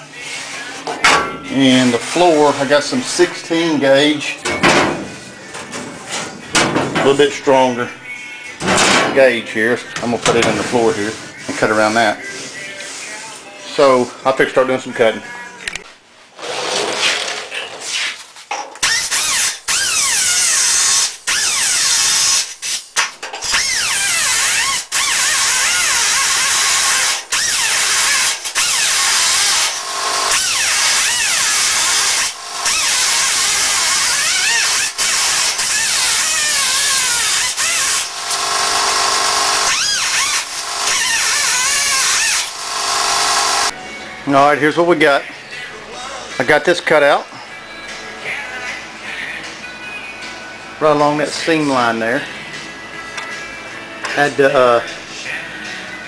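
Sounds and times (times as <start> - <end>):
cut-off wheel cutting steel: 23.4 - 43.7.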